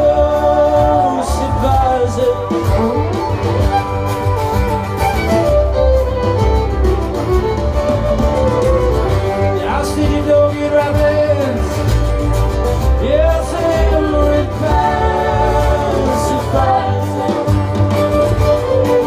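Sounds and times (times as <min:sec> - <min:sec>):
violin melody with sliding notes: 0:00.0 - 0:19.0.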